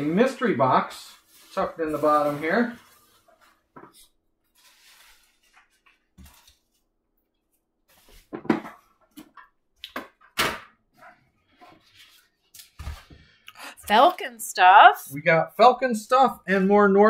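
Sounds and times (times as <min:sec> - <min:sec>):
cardboard and packing peanuts rustling: 0:00.1 - 0:06.8.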